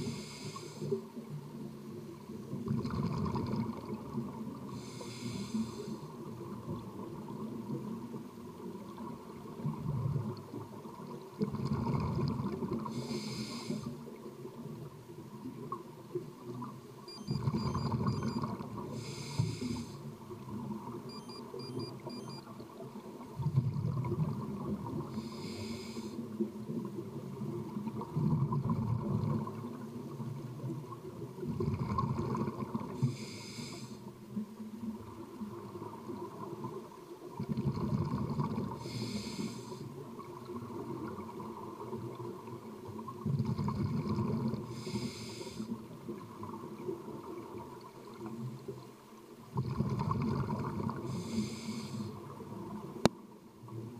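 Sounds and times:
regulator air hiss: 0.0s - 1.0s, 4.8s - 6.1s, 12.9s - 13.9s, 19.0s - 20.0s, 25.2s - 26.2s, 33.0s - 34.0s, 38.8s - 39.9s, 44.7s - 45.7s, 51.1s - 52.2s.

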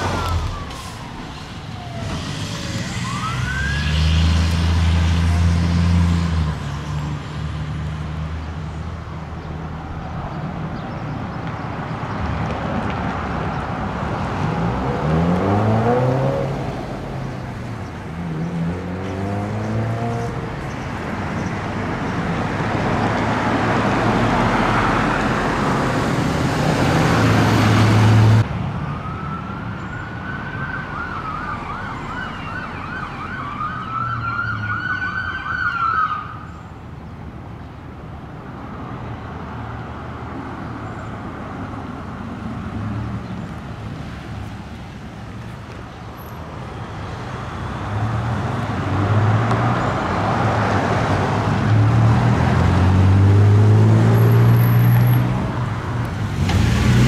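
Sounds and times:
siren tones: 0.0s - 4.1s
heavy truck engine: 0.0s - 9.7s, 12.7s - 29.4s, 43.7s - 57.0s
electronic siren wailing and yelping: 1.8s - 4.0s, 30.2s - 36.4s.

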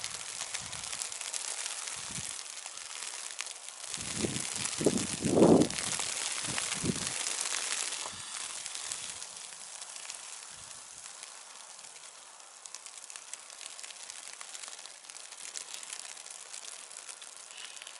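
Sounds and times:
wind buffeting microphone: 0.0s - 1.0s, 2.0s - 2.3s, 3.9s - 7.3s
wet snow falling hiss: 0.0s - 17.9s.

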